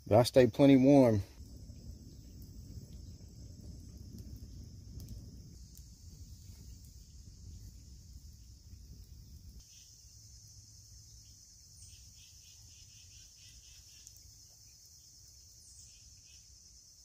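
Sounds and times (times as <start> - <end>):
insect chirring: 0.0 - 17.0
low rumble: 1.3 - 9.6.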